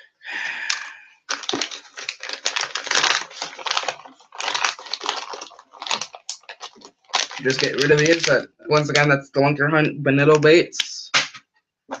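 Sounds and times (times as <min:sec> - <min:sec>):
plastic package crinkling: 0:00.7 - 0:09.1.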